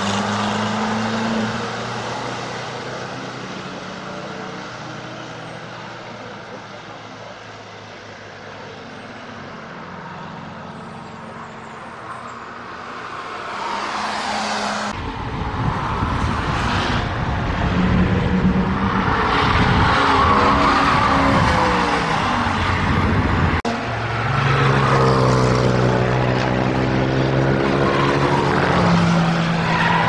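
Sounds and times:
car passing: 0.0 - 30.0
passing van engine: 12.5 - 30.0.

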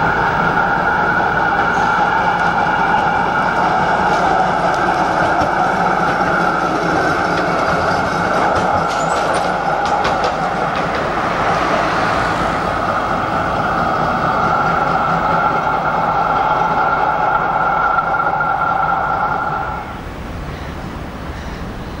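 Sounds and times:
tram wheel clicks: 0.0 - 11.8
car passing tyre noise: 0.0 - 20.2
tram running past: 0.0 - 22.0.

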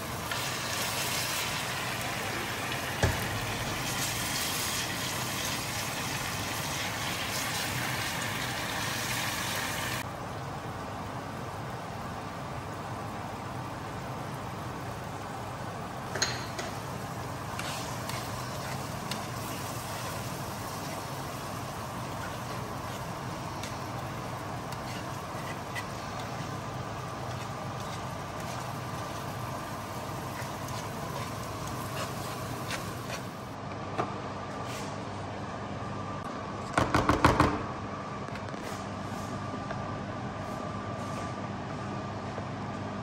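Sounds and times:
food cooking in oil: 0.0 - 33.5
kitchen background hum: 0.0 - 43.0.

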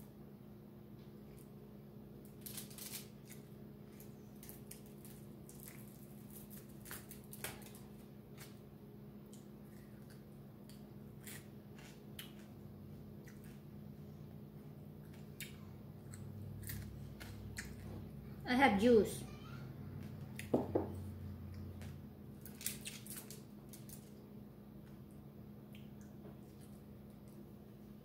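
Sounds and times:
steady low hum: 0.0 - 28.0
fingers picking at food on foil: 2.2 - 8.6, 22.4 - 24.2.

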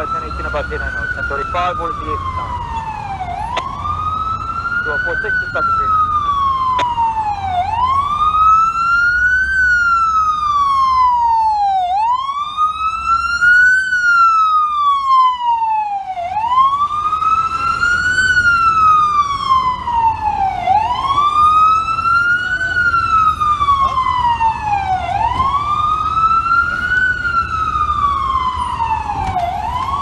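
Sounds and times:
ambulance siren wailing: 0.0 - 30.0
low rumble of traffic: 0.0 - 30.0.

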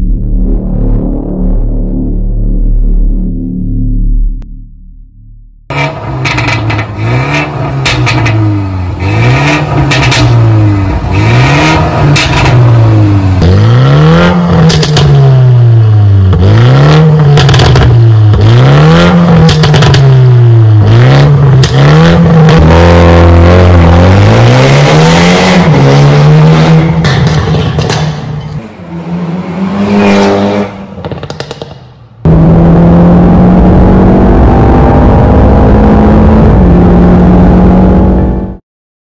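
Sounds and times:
car engine revving: 5.7 - 38.6
exhaust pops and crackles: 6.2 - 8.4, 9.7 - 10.4, 14.6 - 15.2, 17.3 - 18.5, 19.4 - 20.2, 27.0 - 28.3, 31.0 - 32.0.

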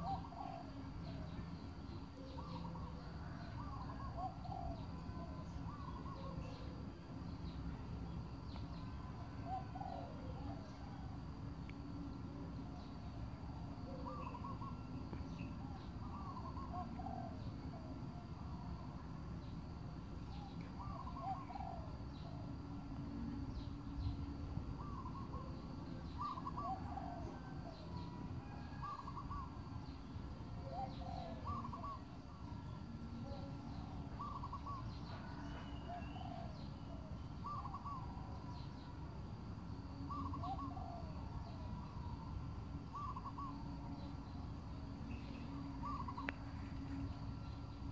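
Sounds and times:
birds cooing: 0.0 - 1.5, 2.1 - 6.8, 9.4 - 11.2, 12.7 - 18.0, 20.3 - 22.6, 24.8 - 29.8, 30.6 - 38.8, 39.9 - 44.4, 45.0 - 47.9.

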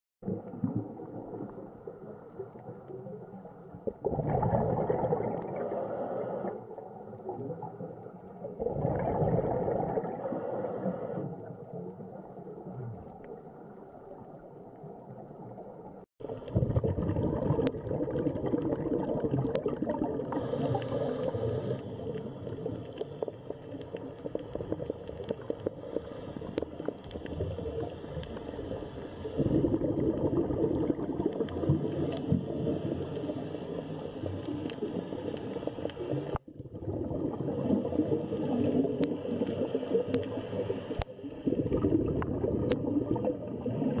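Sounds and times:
underwater gurgling and bubbling: 0.2 - 44.0.

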